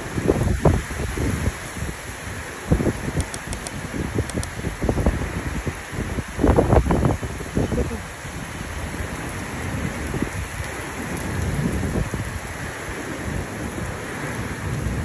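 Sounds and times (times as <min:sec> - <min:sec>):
heavy rain: 0:00.0 - 0:15.0.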